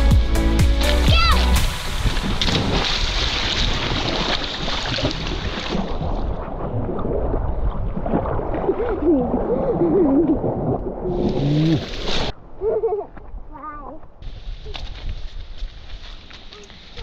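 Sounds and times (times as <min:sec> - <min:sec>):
sea water sloshing and splashing: 0:01.5 - 0:12.4.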